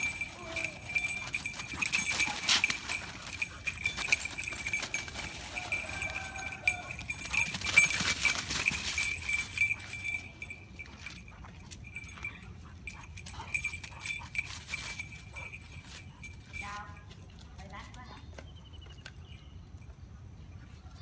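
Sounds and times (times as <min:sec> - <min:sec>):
dogs scuffling in dry leaves: 0:00.0 - 0:10.9.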